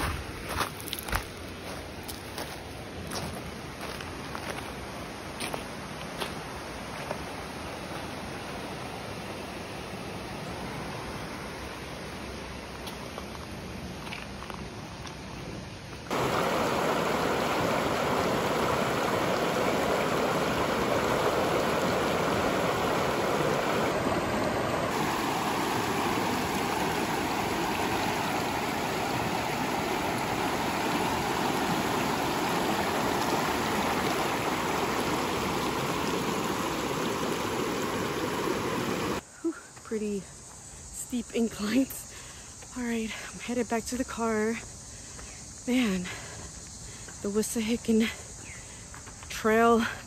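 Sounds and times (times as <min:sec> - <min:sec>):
creek water rippling over stones: 0:00.0 - 0:39.2.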